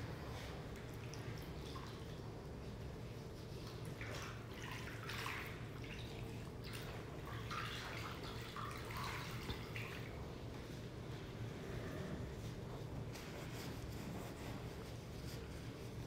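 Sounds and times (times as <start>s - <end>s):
low steady hum: 0.0s - 16.0s
water splashing in a bowl: 0.7s - 2.4s, 3.5s - 10.2s.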